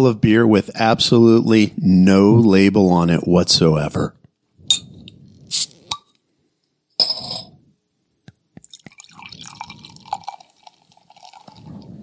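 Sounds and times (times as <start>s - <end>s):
beer pouring into a glass: 8.6s - 12.0s.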